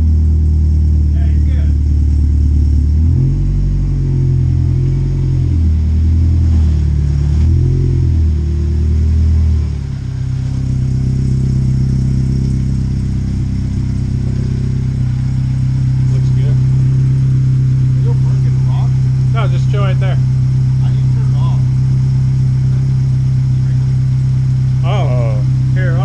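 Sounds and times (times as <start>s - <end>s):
car engine revving and idling: 0.0s - 26.0s.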